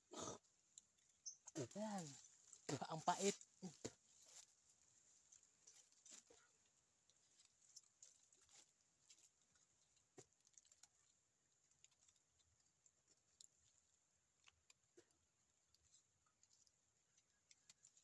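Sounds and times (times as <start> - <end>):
teeth gnawing bark: 5.3 - 18.0.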